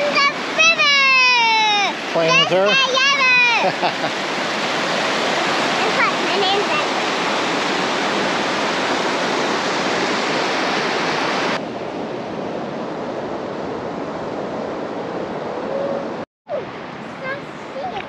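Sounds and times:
river water rushing over rocks: 0.0s - 11.6s.

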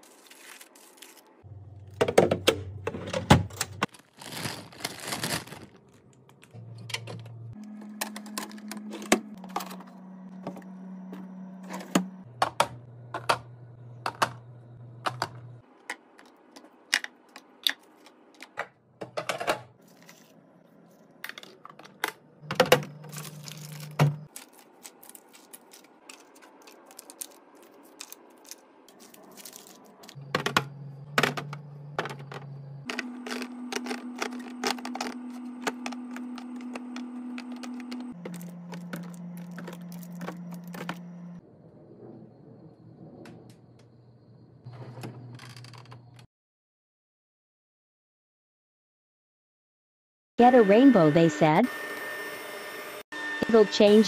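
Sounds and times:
plastic wrap rustling: 0.0s - 1.4s, 3.9s - 6.2s, 23.1s - 30.2s.

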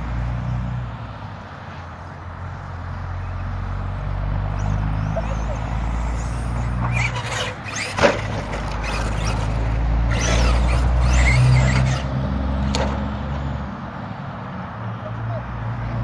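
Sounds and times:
toy truck motor surging: 3.6s - 13.0s.

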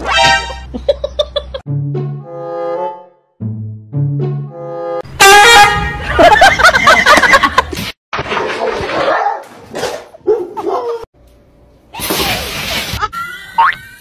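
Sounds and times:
dog barking and yipping: 8.6s - 11.0s.

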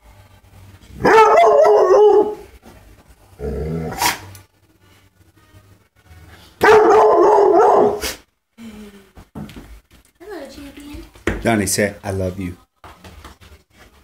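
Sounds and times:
dog howling: 1.0s - 2.4s.

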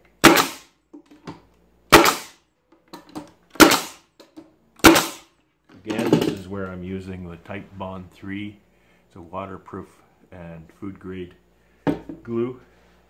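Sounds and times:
pneumatic stapler firing: 0.2s - 0.7s, 1.9s - 2.4s, 3.5s - 4.1s, 4.8s - 5.3s
tool handling clicks: 2.7s - 3.4s.

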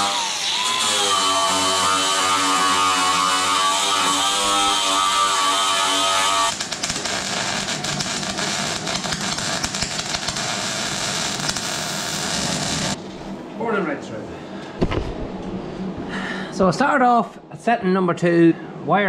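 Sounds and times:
angle grinder on sheet metal: 0.0s - 13.0s
welder crackling: 0.0s - 13.0s.

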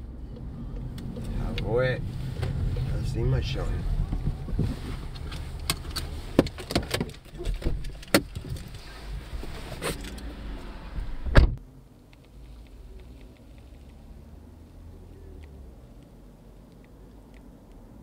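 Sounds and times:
car door shutting: 10.9s - 11.6s.

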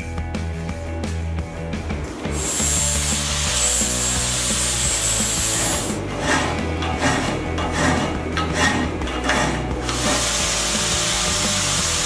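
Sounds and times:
angle grinder grinding steel: 2.3s - 12.0s.

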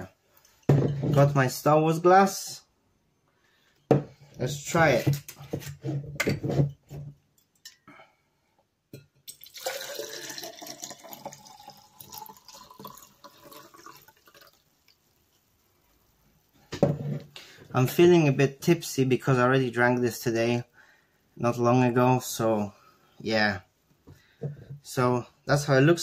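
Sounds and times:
liquid pouring into glass: 9.3s - 15.0s.

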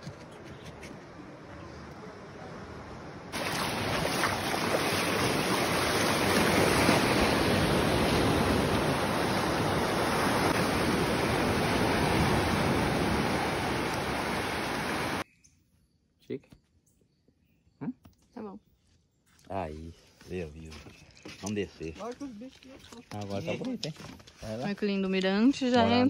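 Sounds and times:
waves breaking on beach: 2.1s - 15.2s.

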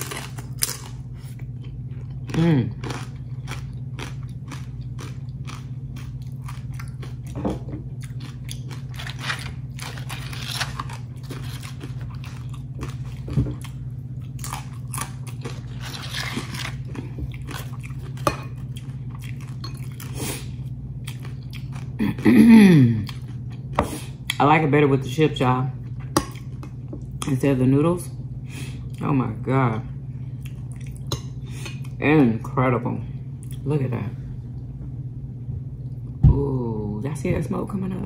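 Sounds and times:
chips crunching while chewed: 0.0s - 22.0s
steady low hum: 0.0s - 38.0s.

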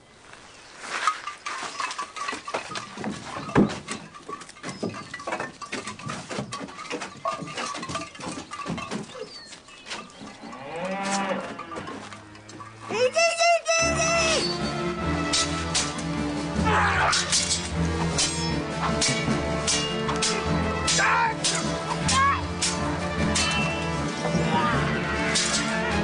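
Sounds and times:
knocking and clattering: 1.0s - 13.0s
cow mooing: 10.4s - 12.9s.

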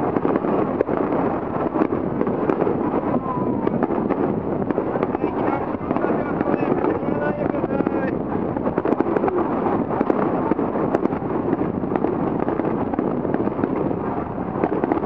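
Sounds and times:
firework shells bursting: 0.0s - 15.0s.

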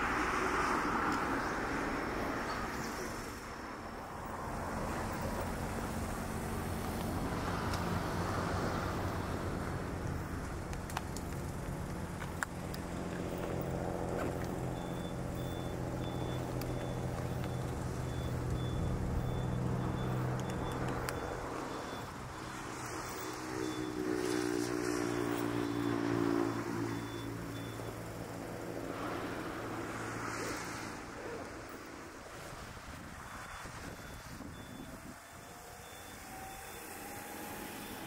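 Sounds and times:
low engine hum: 0.0s - 38.0s
faint high beeps: 14.5s - 28.1s, 33.2s - 38.0s.

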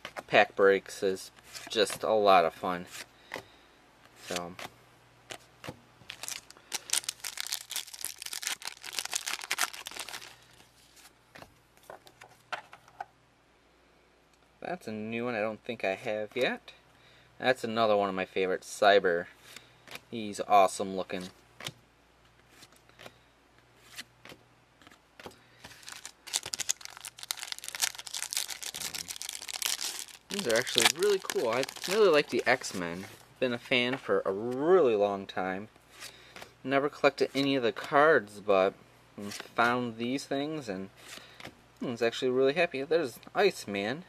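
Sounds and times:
cards ticking: 6.1s - 10.3s, 25.7s - 32.8s
foil wrapper tearing and crinkling: 6.1s - 10.4s, 25.7s - 32.9s.

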